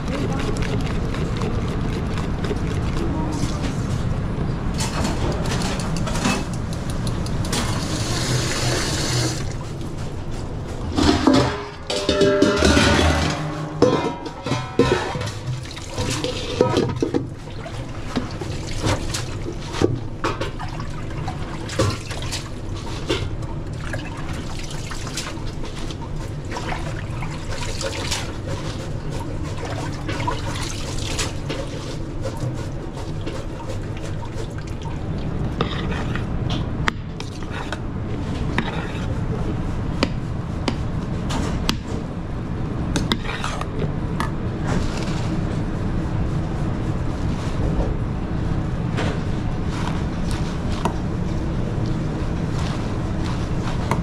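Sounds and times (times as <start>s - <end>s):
steady low hum: 0.0s - 54.0s
utensils and pans clinking: 4.8s - 9.5s, 10.9s - 17.3s
water running: 7.5s - 9.9s.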